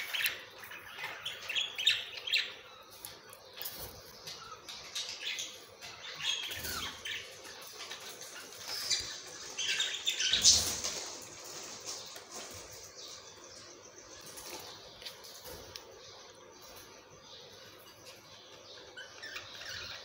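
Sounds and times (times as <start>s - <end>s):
budgerigars chirping: 0.0s - 11.0s, 17.3s - 20.0s.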